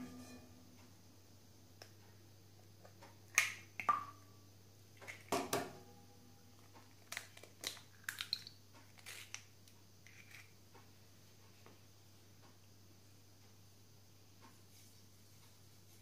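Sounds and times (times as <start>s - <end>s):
eggs cracking on glass bowl: 6.8s - 9.5s.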